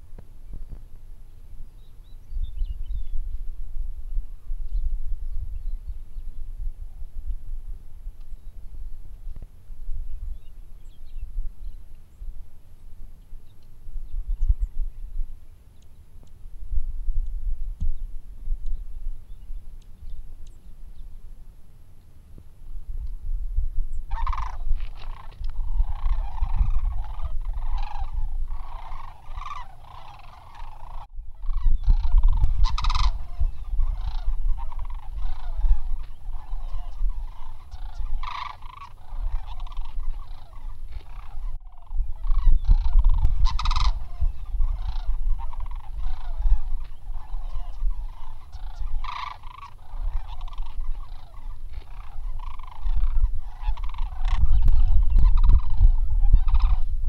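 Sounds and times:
cranes calling: 23.9 - 57.0.

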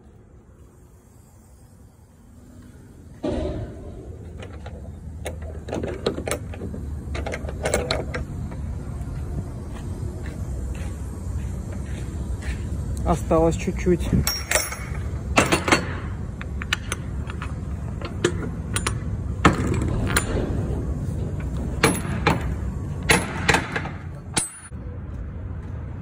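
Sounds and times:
metallic clanks and knocks: 3.2 - 8.6, 14.2 - 24.7.

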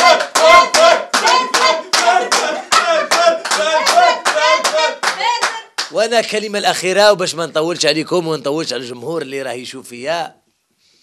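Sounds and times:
audience clapping in rhythm: 0.0 - 6.4.

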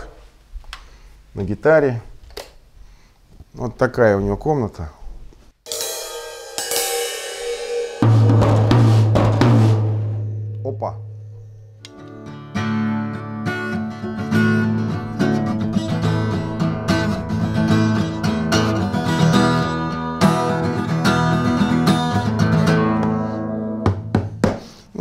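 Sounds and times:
acoustic guitar chords: 5.7 - 24.4.

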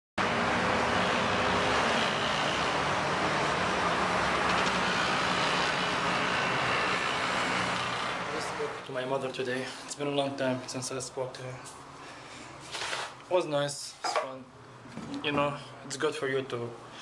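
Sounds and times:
road traffic roar: 0.2 - 8.9.

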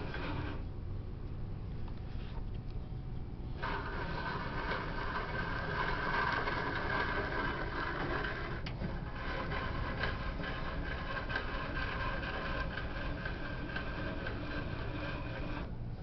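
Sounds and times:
table saw running: 0.0 - 0.6, 3.6 - 15.7.

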